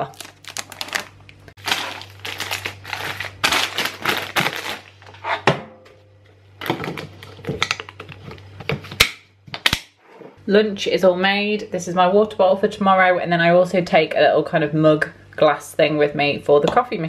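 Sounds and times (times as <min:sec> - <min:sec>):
packets rustling and knocking: 0:00.0 - 0:05.2.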